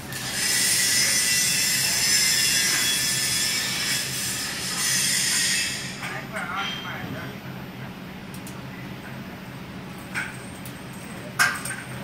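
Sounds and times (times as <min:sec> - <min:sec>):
metalworking high-pitched hiss: 0:00.1 - 0:06.9
faint low machine hum: 0:05.7 - 0:12.0.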